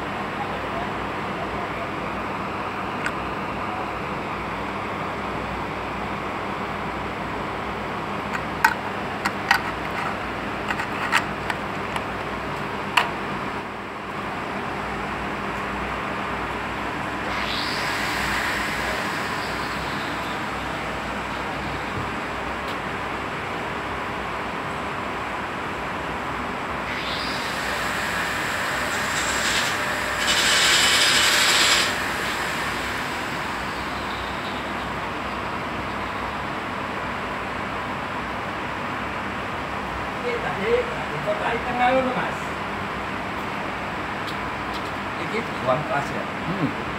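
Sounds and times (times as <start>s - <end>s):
loud hiss: 17.2s - 21.2s, 27.0s - 34.3s.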